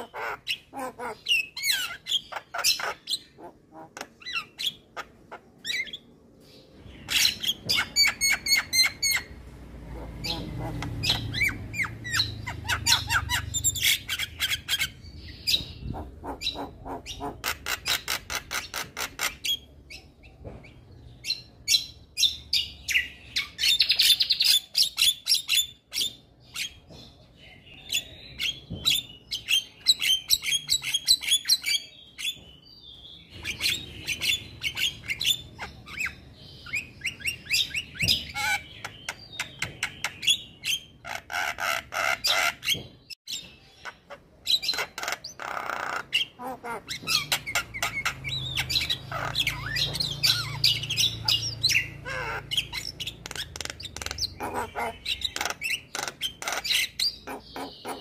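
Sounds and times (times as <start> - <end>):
harsh bird squawks: 0.0 - 6.0, 7.1 - 19.6, 43.8 - 58.0.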